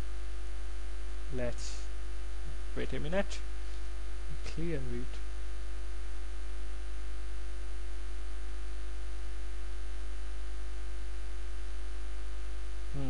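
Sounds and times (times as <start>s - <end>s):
electrical mains hum: 0.0s - 13.0s
faint hiss: 1.2s - 2.0s.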